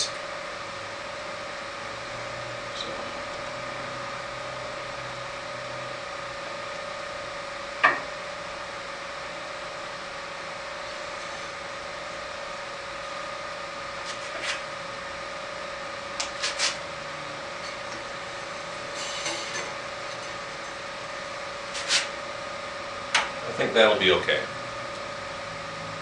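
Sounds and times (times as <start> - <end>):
steady background hum: 0.0 - 26.0
scratchy rustle: 21.7 - 22.1.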